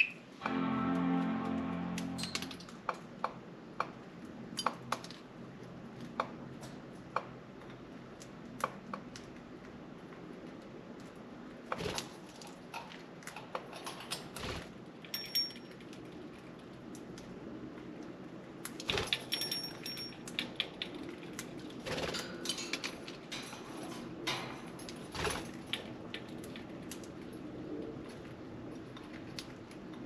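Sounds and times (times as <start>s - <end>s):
budgies clicking and tapping in cage: 18.6s - 30.0s.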